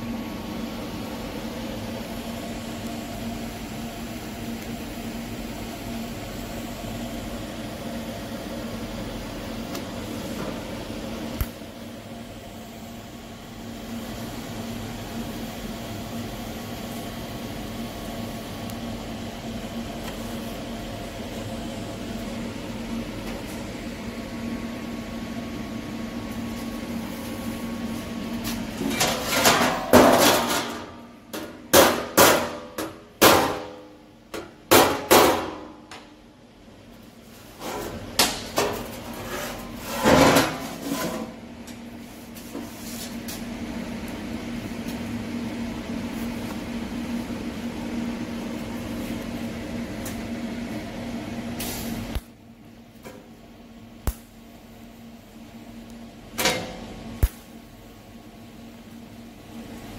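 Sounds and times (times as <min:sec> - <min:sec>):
steady shop hum: 0:00.0 - 0:59.9
hammer striking sheet metal: 0:31.4 - 0:33.8, 0:34.4 - 0:35.7.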